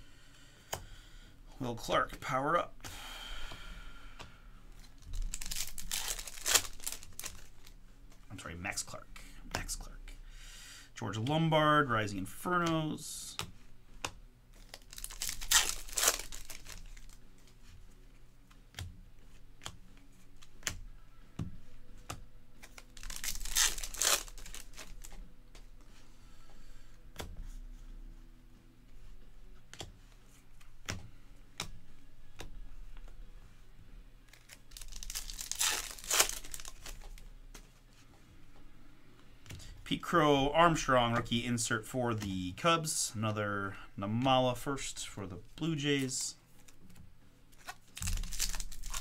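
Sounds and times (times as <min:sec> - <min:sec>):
cards flipping clicks: 0:04.2 - 0:08.2, 0:12.5 - 0:17.7, 0:18.5 - 0:25.8, 0:29.7 - 0:33.2, 0:34.3 - 0:37.7, 0:46.0 - 0:49.0
wrappers tearing and crinkling: 0:04.8 - 0:07.8, 0:14.5 - 0:17.6, 0:22.6 - 0:25.2, 0:34.2 - 0:37.3, 0:47.5 - 0:49.0.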